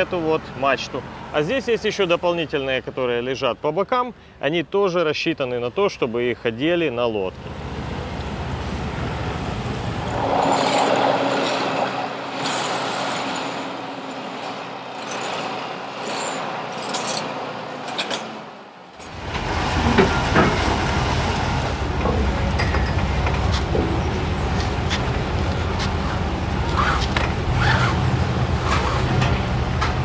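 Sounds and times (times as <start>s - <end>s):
heavy vehicle engine humming: 7.4s - 30.0s
sharp metallic knocks: 21.9s - 25.3s.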